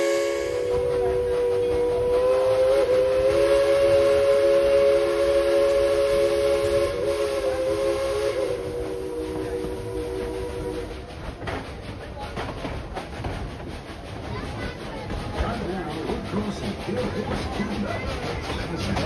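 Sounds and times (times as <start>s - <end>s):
steam locomotive whistle chord: 0.0s - 10.9s.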